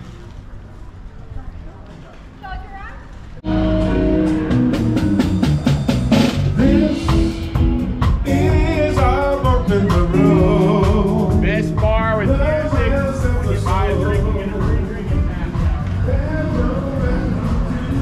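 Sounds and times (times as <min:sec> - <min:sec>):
drum kit beating: 0:03.4 - 0:18.0
live band playing: 0:03.4 - 0:18.0
person singing: 0:06.5 - 0:18.0.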